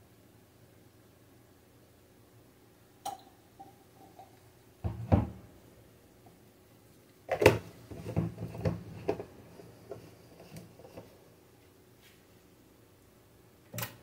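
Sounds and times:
knocks and thumps: 4.8s - 5.4s.

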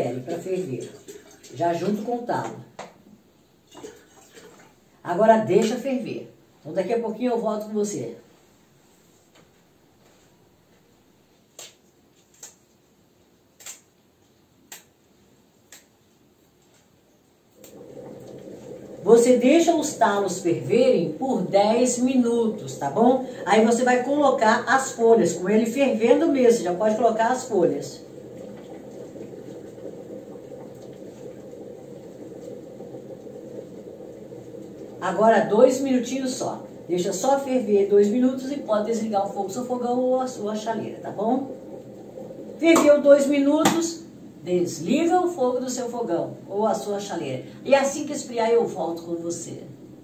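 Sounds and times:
water boiling in kettle: 0.0s - 8.4s, 17.4s - 50.0s
leaves snapping as torn: 11.6s - 12.6s, 13.6s - 13.9s.

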